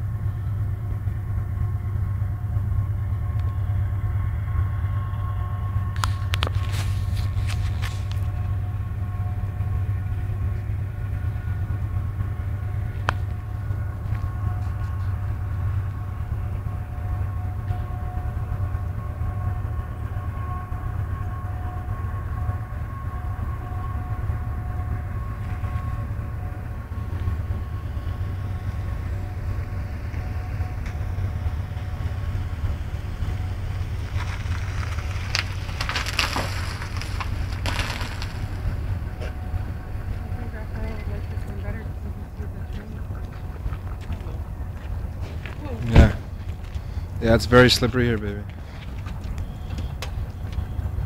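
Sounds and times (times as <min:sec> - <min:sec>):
freight train rumbling: 0:00.0 - 0:51.0
loud crunching noises: 0:33.5 - 0:39.4.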